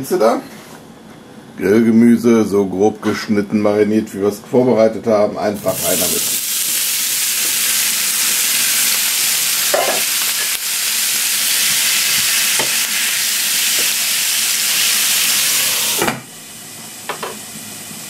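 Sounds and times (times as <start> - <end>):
vegetables sizzling in oil: 5.6 - 18.0
glass lid on pan: 9.7 - 10.5.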